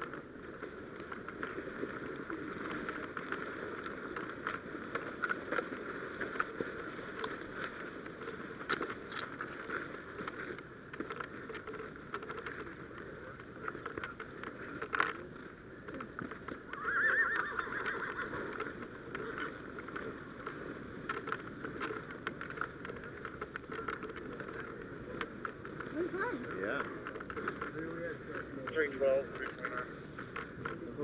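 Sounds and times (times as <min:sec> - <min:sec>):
horse whinnying: 0:16.7 - 0:18.6.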